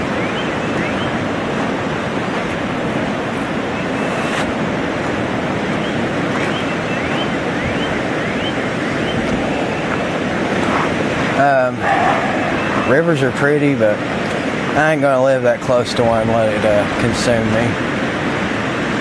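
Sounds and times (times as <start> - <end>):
river rushing: 0.0 - 19.0
short high rising chirps: 3.7 - 4.5.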